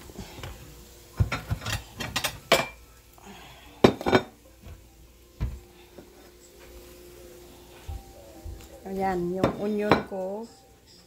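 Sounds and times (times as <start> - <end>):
dishes clinking: 1.2 - 2.8, 3.8 - 4.4, 9.4 - 10.2.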